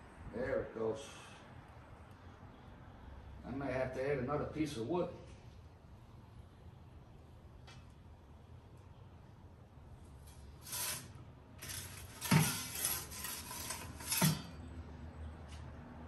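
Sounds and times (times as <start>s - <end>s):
metal peel scraping oven floor: 10.3s - 14.6s.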